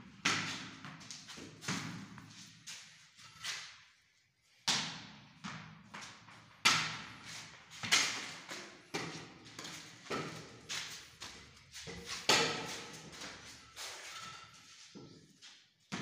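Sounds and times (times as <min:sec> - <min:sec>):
plastic bat and ball knocking on concrete: 0:07.8 - 0:13.4.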